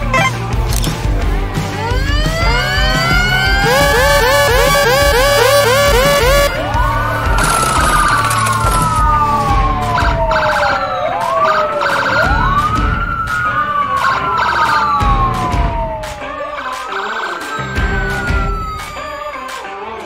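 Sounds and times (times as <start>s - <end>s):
upbeat background music: 0.0s - 20.0s
emergency vehicle sirens wailing: 1.4s - 19.7s.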